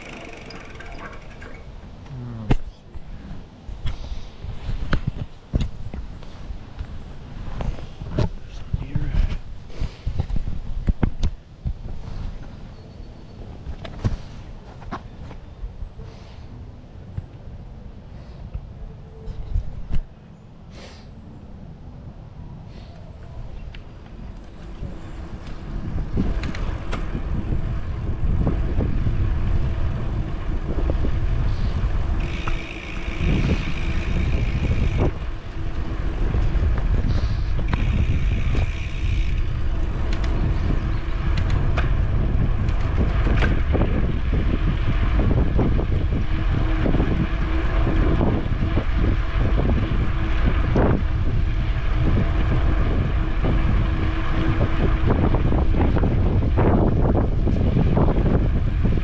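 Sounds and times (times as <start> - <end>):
wind buffeting microphone: 2.5 - 12.7, 22.1 - 59.0
high-pitched buzz: 32.1 - 39.8.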